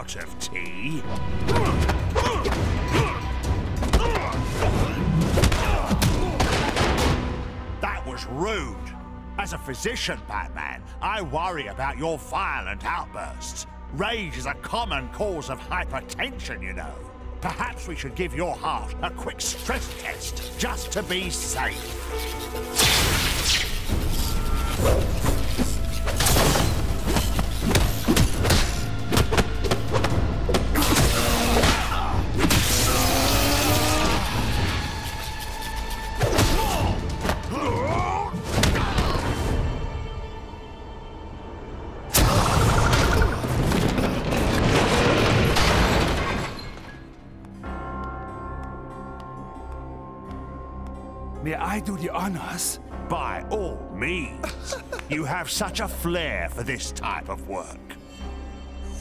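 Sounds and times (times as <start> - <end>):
background music: 0.0 - 59.0
cartoon action music: 1.3 - 7.3, 22.7 - 39.6.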